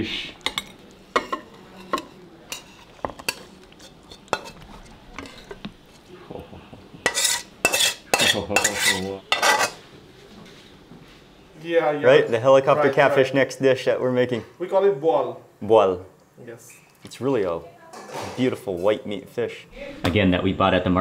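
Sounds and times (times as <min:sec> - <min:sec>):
metal spatula scraping a wok: 0:00.5 - 0:06.0, 0:07.0 - 0:09.8.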